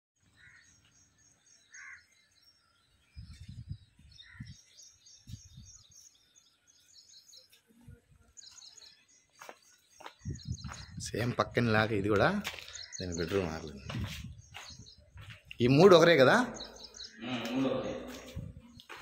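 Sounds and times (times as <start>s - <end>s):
small birds chirping: 0.2s - 19.0s
low rumbles on microphone: 10.2s - 11.6s, 18.2s - 18.8s.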